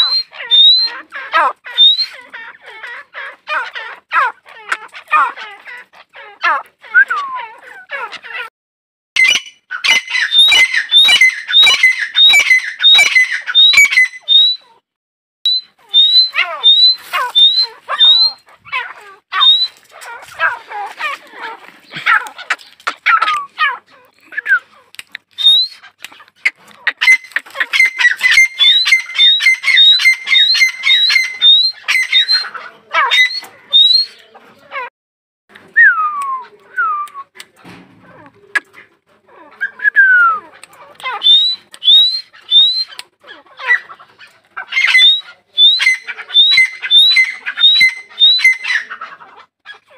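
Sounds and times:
francolin calling: 0.0s - 3.8s, 9.2s - 14.7s, 15.5s - 19.8s, 27.0s - 32.5s
harsh bird squawking: 0.0s - 8.5s, 9.2s - 14.7s, 15.5s - 24.8s, 25.4s - 34.3s, 39.6s - 49.9s.

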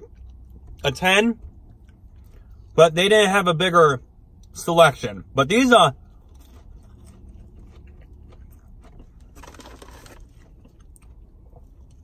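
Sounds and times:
low steady hum: 0.0s - 12.0s
faint chewing: 6.0s - 12.0s
crunchy rustle: 6.2s - 11.2s.

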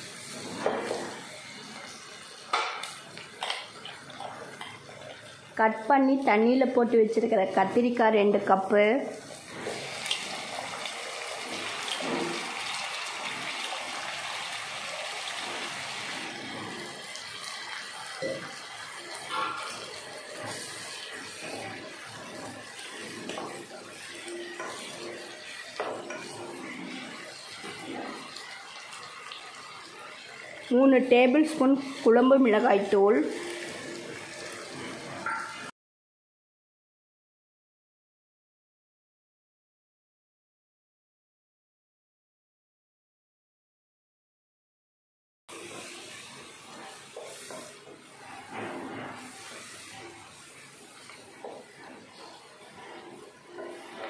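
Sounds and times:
frying hiss: 0.0s - 35.7s, 45.5s - 54.0s
spatula stirring in a pan: 9.2s - 35.6s, 45.5s - 54.0s.

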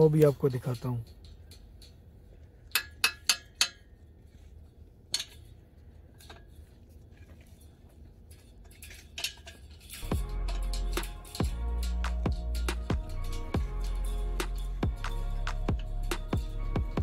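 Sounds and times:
spanner clinking on metal clamps: 0.0s - 4.0s, 5.1s - 5.6s, 8.3s - 17.0s.

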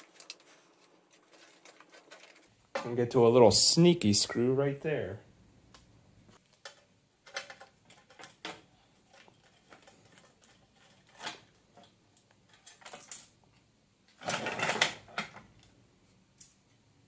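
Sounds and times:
clattering handling noise: 0.0s - 3.0s.

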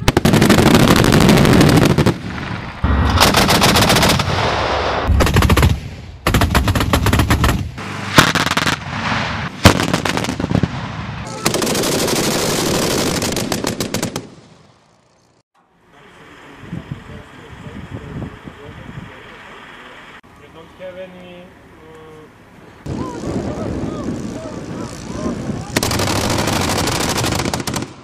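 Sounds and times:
autocannon firing bursts: 0.0s - 14.5s, 25.7s - 28.0s.

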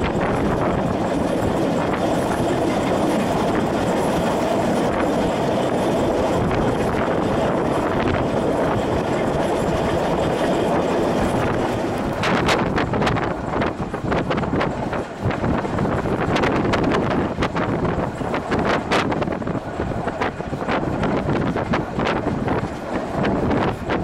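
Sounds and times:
train wheels rumbling on track: 0.0s - 24.0s.

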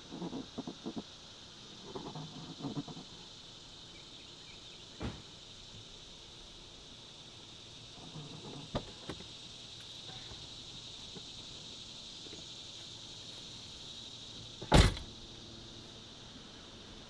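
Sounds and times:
high insect drone: 0.0s - 17.0s
car door shutting thud: 5.0s - 5.3s, 14.6s - 15.1s.

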